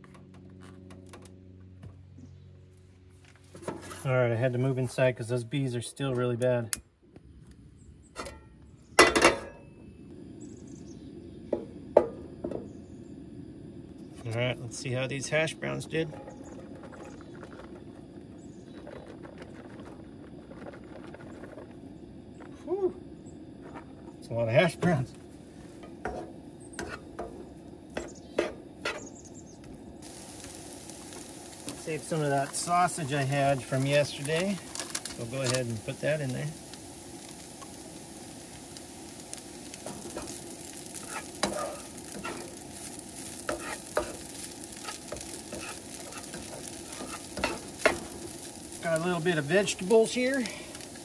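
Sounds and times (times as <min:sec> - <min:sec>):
frying hiss: 0:03.2 - 0:51.0
spatula scraping a frying pan: 0:03.5 - 0:04.1, 0:26.0 - 0:27.3, 0:28.0 - 0:29.1, 0:39.9 - 0:48.3
gas burner igniting with a rush: 0:07.5 - 0:51.0
burner flame rushing: 0:08.8 - 0:51.0.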